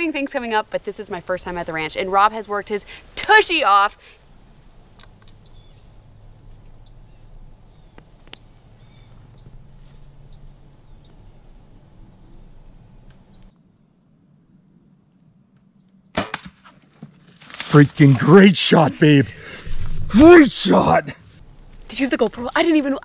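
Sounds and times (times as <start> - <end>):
insects trilling: 0.0 - 16.2, 16.8 - 23.0
faint clicks: 4.6 - 5.9, 6.6 - 11.6, 13.0 - 13.5.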